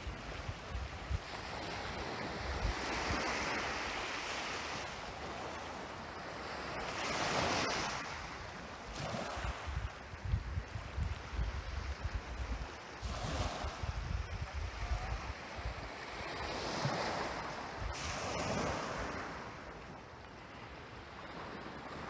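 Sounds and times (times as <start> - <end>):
small waves washing onto pebbles: 0.0 - 22.0
wind buffeting microphone: 8.9 - 19.4.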